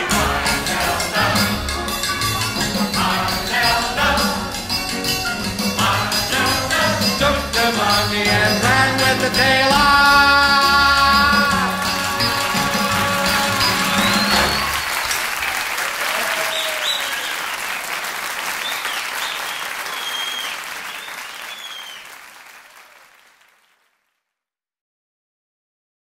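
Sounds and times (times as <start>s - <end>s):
audience applauding: 0.0s - 4.4s, 10.8s - 24.1s
high whistles: 12.2s - 17.8s, 18.6s - 22.2s.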